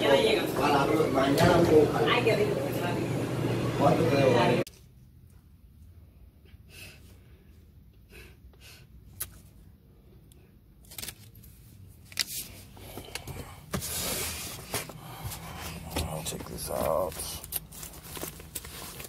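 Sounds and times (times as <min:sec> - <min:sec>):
paper rustling: 0:10.8 - 0:19.0.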